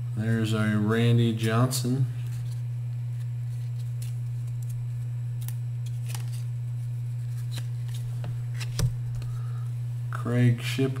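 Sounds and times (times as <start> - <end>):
low steady hum: 0.0 - 11.0
cardboard cards flicking: 5.4 - 6.5, 7.3 - 9.3.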